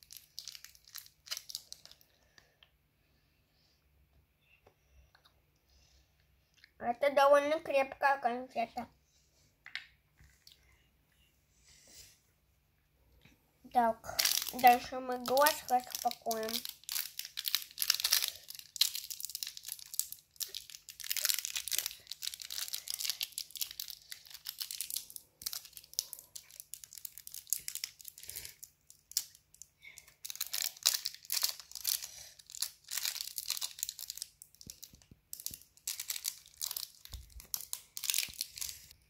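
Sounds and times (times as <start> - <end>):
plastic wrapper crinkling: 0.0 - 2.6, 14.0 - 39.0.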